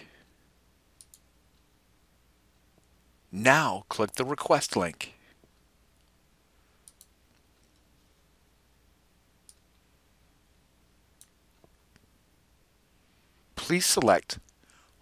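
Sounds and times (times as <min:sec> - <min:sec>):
computer mouse clicks: 0:01.0 - 0:01.7, 0:06.8 - 0:07.9, 0:09.4 - 0:09.8.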